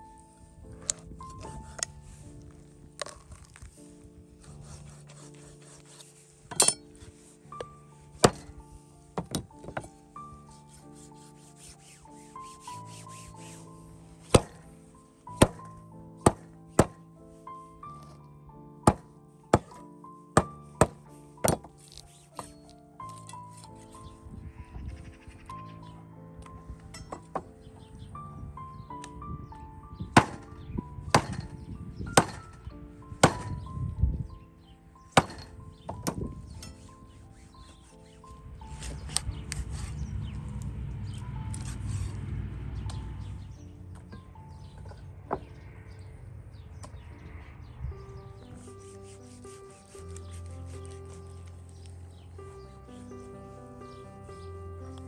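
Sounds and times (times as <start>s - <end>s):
soft background music: 0.0s - 55.0s
faint rubbing: 1.0s - 15.1s, 48.6s - 51.9s
cleaver chopping into wooden block: 14.3s - 14.6s, 15.4s - 15.7s, 16.3s - 17.0s, 18.9s - 19.8s, 20.4s - 21.7s, 30.2s - 30.4s, 31.1s - 31.5s, 32.2s - 32.5s, 33.2s - 33.6s, 35.2s - 36.3s.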